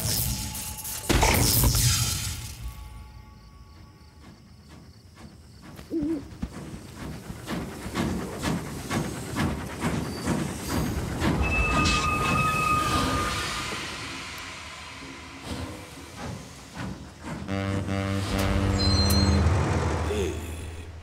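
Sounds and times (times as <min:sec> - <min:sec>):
steam train chugging and hissing: 0:00.0 - 0:21.0
owl hoot: 0:05.9 - 0:06.3
train whistle: 0:11.4 - 0:15.8, 0:17.4 - 0:20.2.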